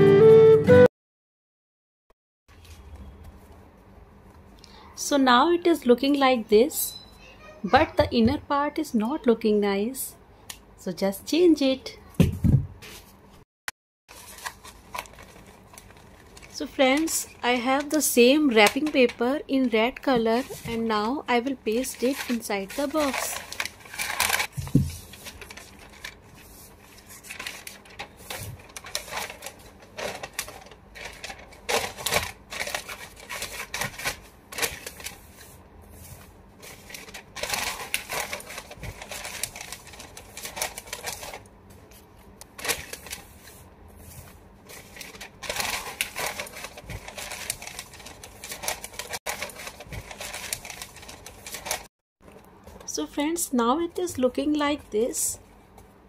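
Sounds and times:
wrapping paper crinkling: 14.1s - 51.9s.

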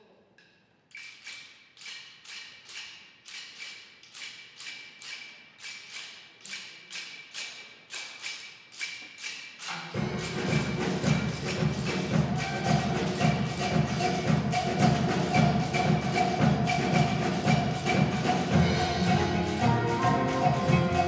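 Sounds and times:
metallic percussion tapping beat: 0.9s - 21.0s
steel pan band playing: 9.6s - 21.0s.

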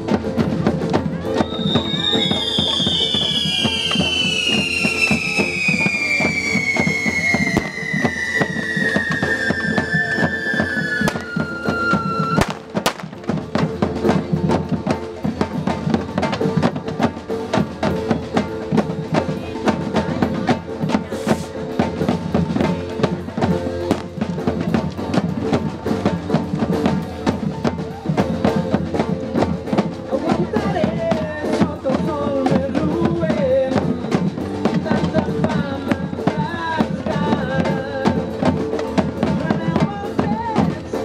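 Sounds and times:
fast drumming on bass and snare: 0.0s - 41.0s
firework whistle: 1.4s - 12.6s.

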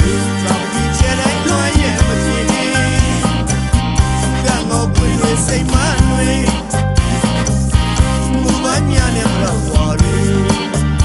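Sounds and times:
person singing: 0.0s - 3.5s, 4.2s - 6.8s, 8.2s - 11.0s
drum beat: 0.0s - 10.3s
bass line: 0.0s - 11.0s.

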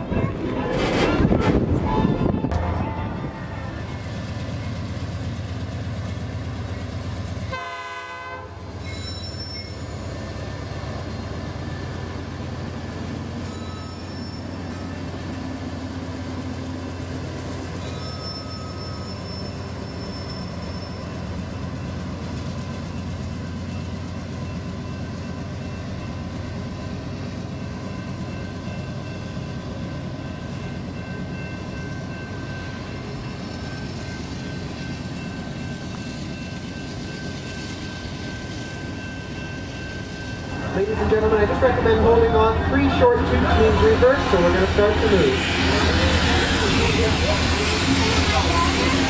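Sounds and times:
diesel locomotives rumbling: 0.0s - 49.0s.

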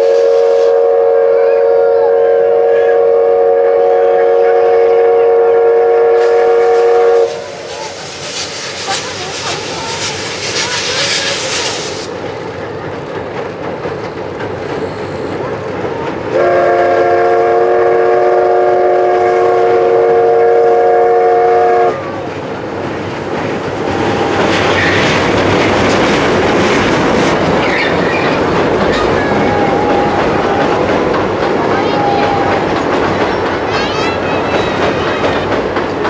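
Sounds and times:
steam whistle blast: 0.0s - 7.7s, 16.3s - 22.1s
train rumbling over bridge: 0.0s - 36.0s.

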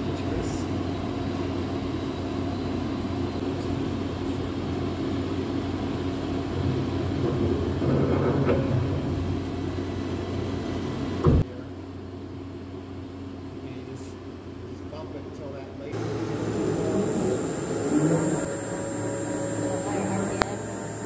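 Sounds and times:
machine hum: 15.9s - 21.0s
faint high whine: 16.0s - 21.0s.

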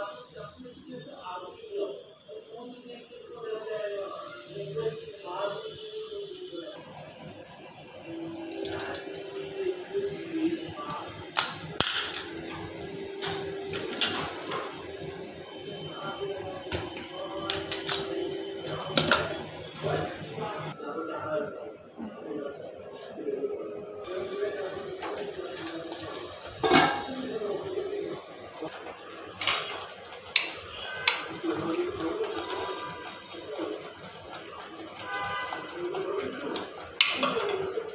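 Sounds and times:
metal cookware clicks and knocks: 11.4s - 12.3s, 26.6s - 27.1s
ladle clanking on metal pot: 26.6s - 27.2s.

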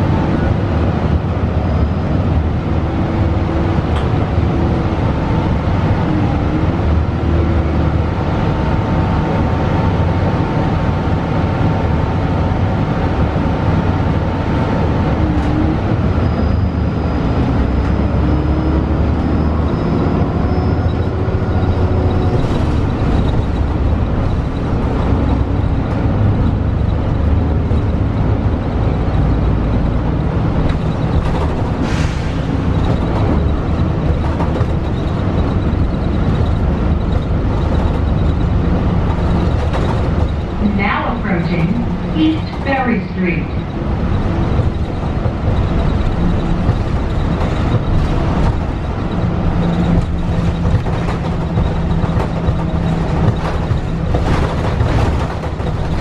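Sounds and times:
bus engine running: 0.0s - 56.0s
low road rumble: 0.0s - 56.0s.

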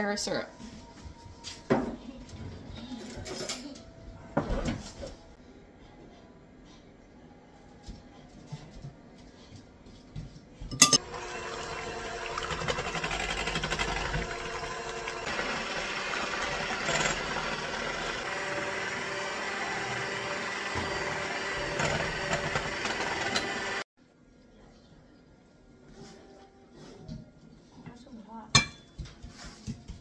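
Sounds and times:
electric hand mixer whipping: 11.0s - 23.9s.

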